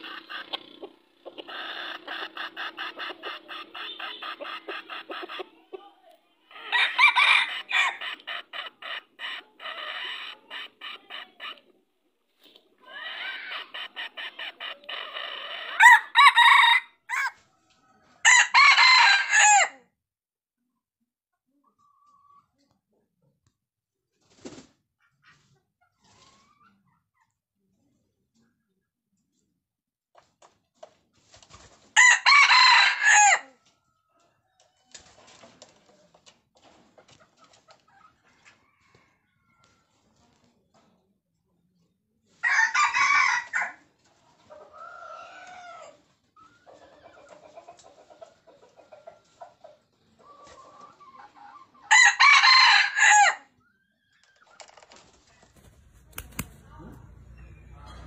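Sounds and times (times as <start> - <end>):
rooster clucking: 0.0 - 11.8, 12.4 - 17.4, 55.4 - 58.0
rooster crowing: 6.6 - 8.0, 15.8 - 17.3, 18.2 - 19.8, 32.0 - 33.4, 51.9 - 53.4.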